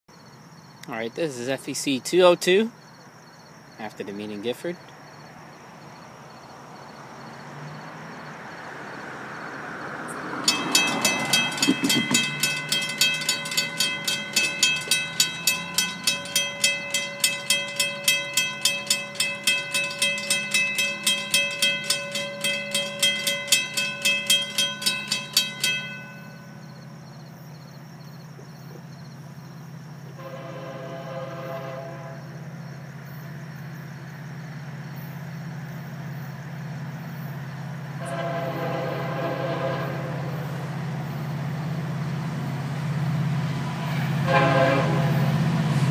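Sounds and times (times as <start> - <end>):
low train hum: 0.1 - 45.9
railroad crossing bell ringing: 10.2 - 32.5, 36.6 - 45.9
locomotive horn blast: 30.2 - 32.4, 38.0 - 40.6, 43.8 - 45.8.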